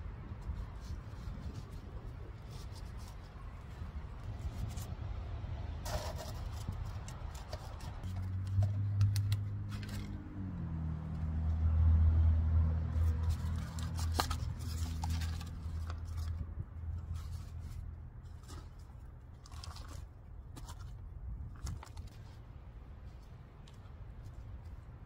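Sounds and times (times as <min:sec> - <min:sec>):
plastic pots crinkling: 0:05.8 - 0:10.4, 0:13.0 - 0:24.9.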